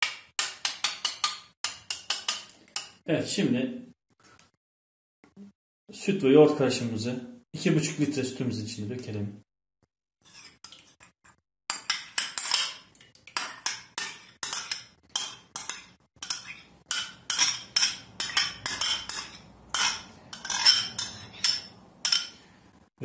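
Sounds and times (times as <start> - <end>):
teaspoon scraping a bowl: 10.2 - 11.0, 13.4 - 22.4.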